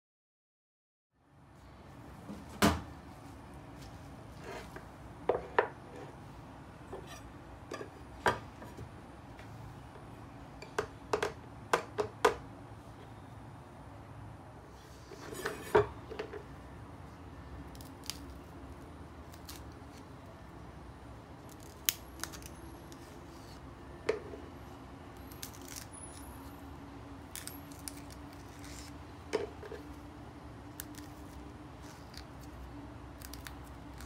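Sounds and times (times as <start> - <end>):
pea pods snapping: 33.2 - 34.0.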